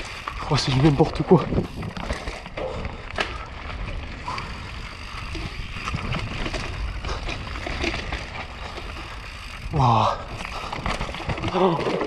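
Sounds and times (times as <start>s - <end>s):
bike rattling and knocking: 0.0s - 12.0s
bike tyres rolling on dirt trail: 0.0s - 12.0s
wind rumble on microphone: 1.2s - 2.1s, 3.8s - 8.4s.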